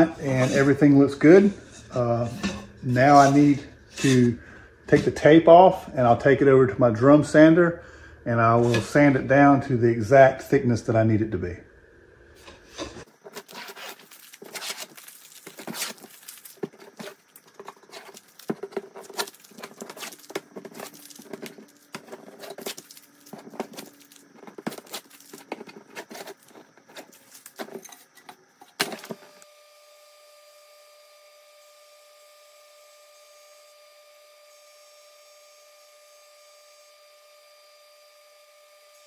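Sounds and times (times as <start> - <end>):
faint steady hum: 0.0 - 39.0
tape peeling off wood: 13.2 - 28.8.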